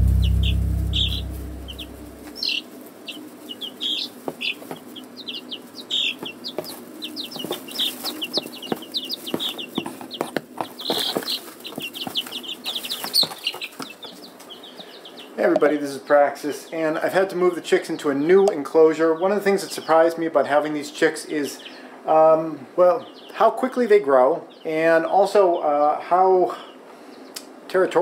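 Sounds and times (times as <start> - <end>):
low rumble: 0.0 - 2.3
chicks peeping: 0.0 - 28.0
soft taps and rustles: 4.1 - 5.2, 6.2 - 14.5.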